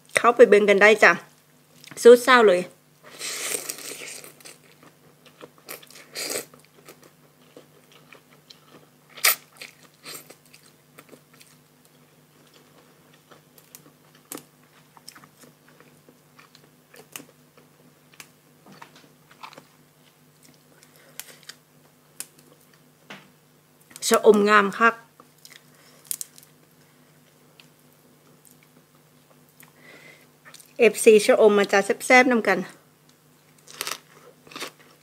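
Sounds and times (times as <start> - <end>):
person chewing food: 3.4 - 22.9, 25.2 - 26.6, 33.4 - 35.0
crisp crunches: 33.5 - 35.0.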